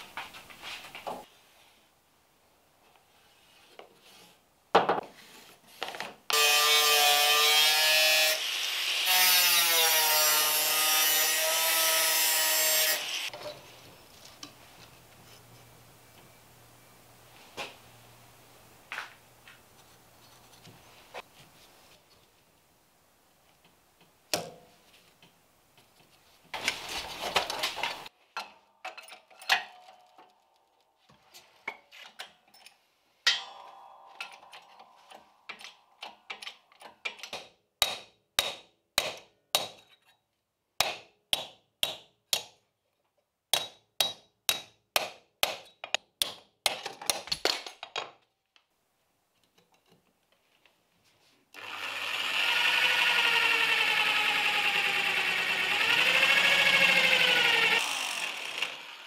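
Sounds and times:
electric drill whining: 0:51.6 - 0:59.0.

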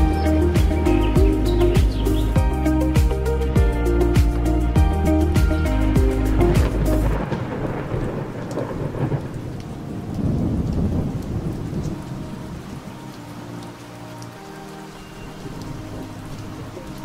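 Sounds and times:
steady rain: 0:00.0 - 0:17.0
rolling thunder: 0:06.3 - 0:12.7.

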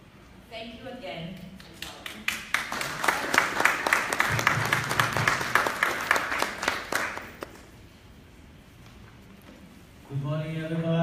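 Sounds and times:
audience applauding: 0:02.2 - 0:07.7.

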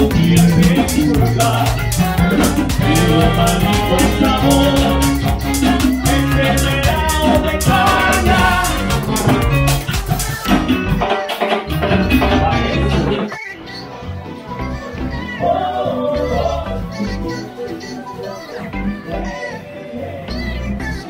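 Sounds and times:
live band playing dance music: 0:00.0 - 0:13.6.

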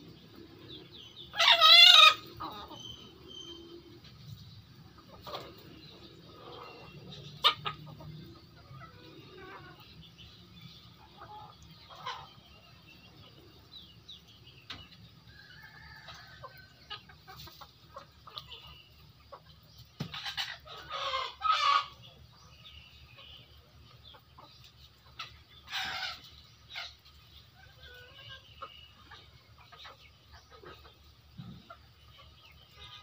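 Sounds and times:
chickens clucking: 0:00.0 - 0:33.0
loud chicken calls: 0:00.4 - 0:04.0, 0:04.8 - 0:10.1, 0:14.7 - 0:22.4, 0:25.1 - 0:33.0.

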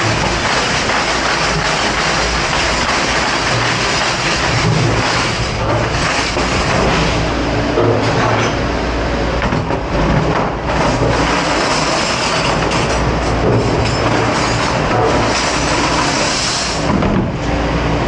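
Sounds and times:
cutlery and racks clattering: 0:00.0 - 0:07.2, 0:10.2 - 0:17.2
steady loud rushing rumble: 0:00.0 - 0:18.0.

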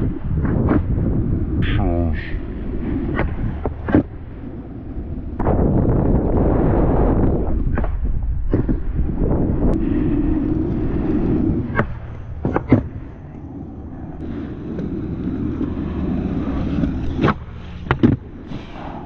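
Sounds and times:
skateboard wheels rolling on asphalt: 0:00.0 - 0:19.0
sharp clicks and knocks: 0:17.1 - 0:18.2.

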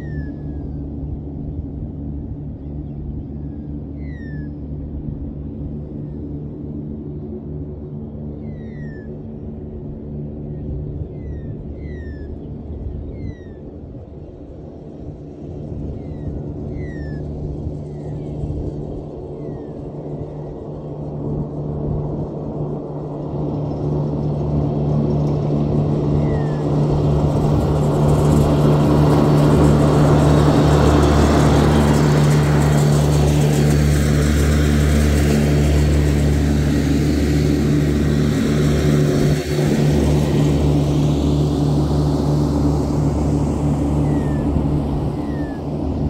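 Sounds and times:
ride-on mower engine: 0:14.3 - 0:46.0.

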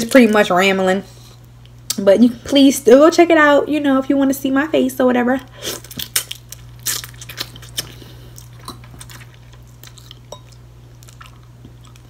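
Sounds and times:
chewing crab meat: 0:05.6 - 0:12.0.

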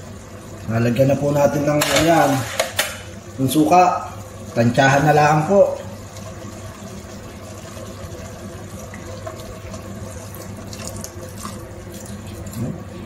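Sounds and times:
liquid pouring into liquid: 0:03.0 - 0:13.0.

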